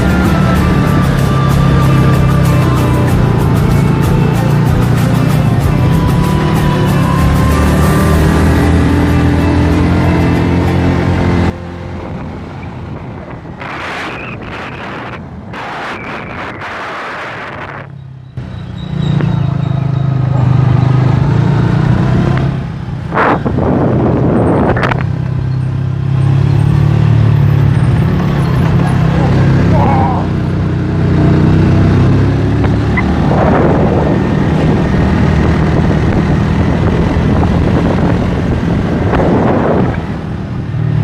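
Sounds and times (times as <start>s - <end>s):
background music: 0.0s - 11.9s
motorcycle engine running: 0.0s - 16.5s, 17.6s - 41.0s
wind and road noise: 0.0s - 41.0s.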